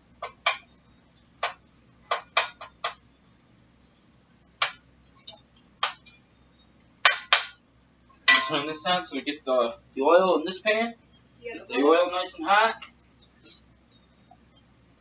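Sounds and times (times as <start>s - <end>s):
metal utensil clinking on a pan: 8.3s - 8.6s.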